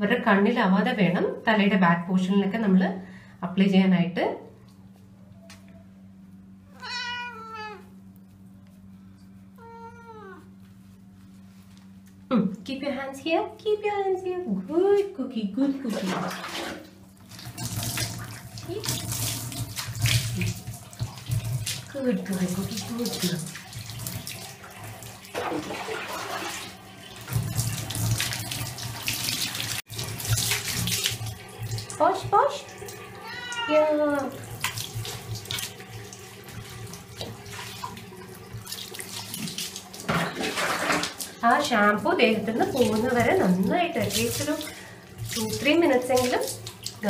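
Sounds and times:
steady low hum: 0.0 - 16.0
cat meowing: 6.7 - 8.0, 9.6 - 10.5, 33.2 - 34.0
water poured and splashing: 16.0 - 33.2, 34.2 - 41.4, 42.6 - 47.0.

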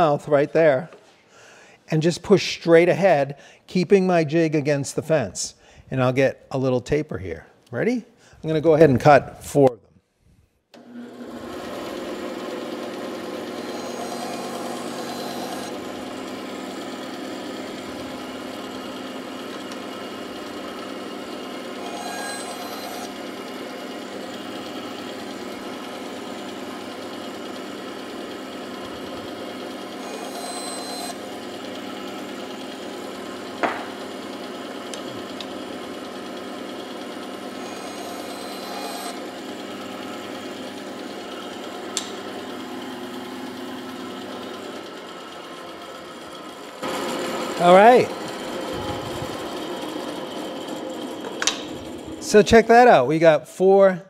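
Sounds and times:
bandsaw blade cutting wood: 10.8 - 44.9, 46.8 - 52.9
bandsaw humming: 10.8 - 53.2.

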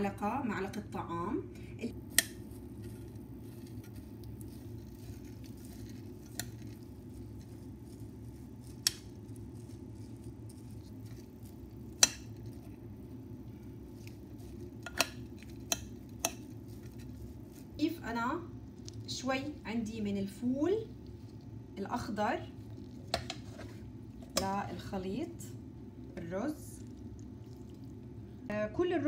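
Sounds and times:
steady low hum: 0.0 - 29.0
rice grains rustling: 2.0 - 24.1.

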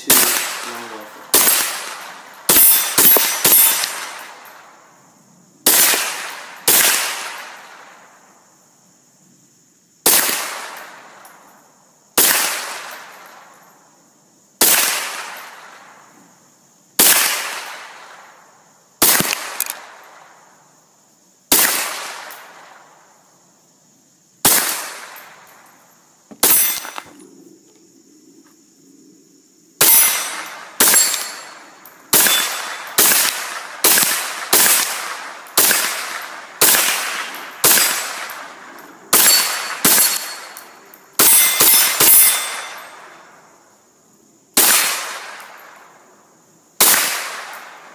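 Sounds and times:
rifle shots: 0.0 - 4.6, 5.6 - 7.9, 10.0 - 11.1, 12.2 - 13.3, 14.6 - 16.0, 17.0 - 18.2, 19.0 - 20.1, 21.5 - 22.7, 24.4 - 25.5, 26.4 - 27.1, 29.8 - 43.1, 44.6 - 45.8, 46.8 - 47.9.

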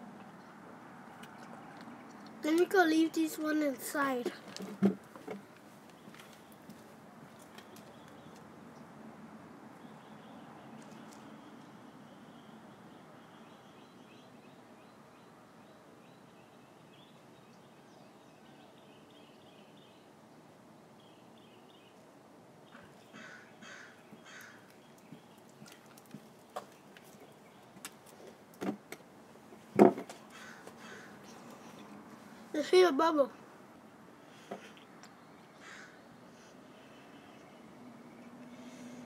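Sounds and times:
light bird chirps: 5.8 - 9.0, 9.7 - 28.5, 34.2 - 39.0
crow cawing: 23.1 - 24.7, 30.3 - 31.2, 35.6 - 36.1
knocks: 29.8 - 30.2.

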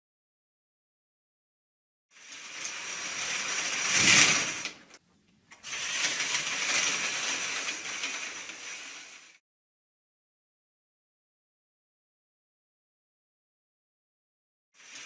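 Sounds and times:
curtain swishing: 2.1 - 5.0, 5.6 - 9.4, 14.8 - 15.0.

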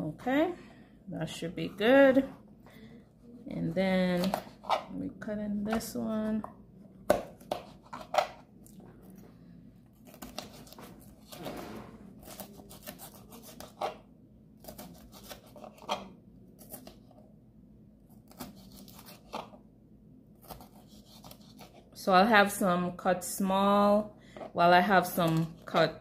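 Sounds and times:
knife slicing pepper on board: 7.1 - 8.4, 10.0 - 11.6, 12.2 - 14.0, 14.6 - 17.0, 18.2 - 19.6, 20.4 - 21.8.

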